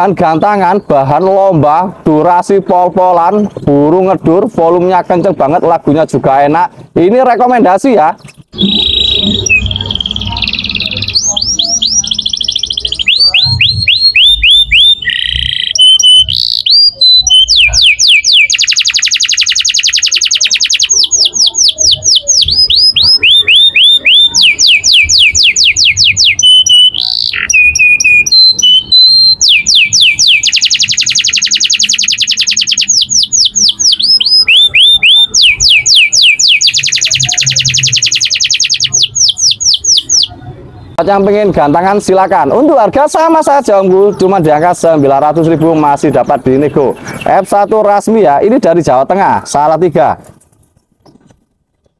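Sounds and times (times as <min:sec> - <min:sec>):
canary singing trills: 0:08.2 - 0:48.4.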